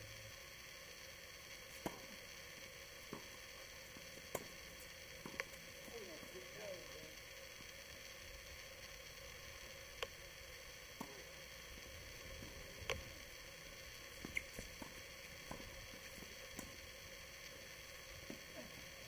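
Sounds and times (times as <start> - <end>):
steady hiss: 0.0 - 19.0
tennis balls struck and bouncing: 1.8 - 2.1, 11.0 - 11.3, 14.2 - 16.7.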